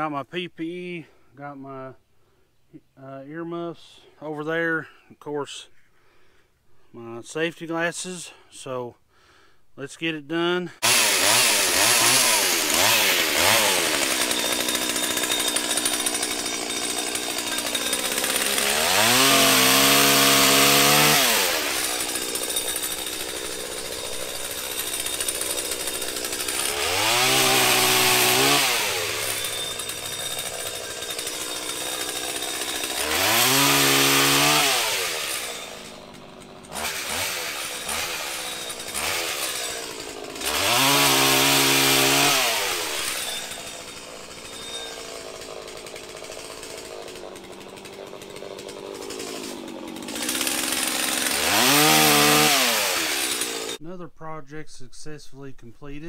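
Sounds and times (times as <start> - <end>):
pole saw motor revving: 10.8 - 53.8.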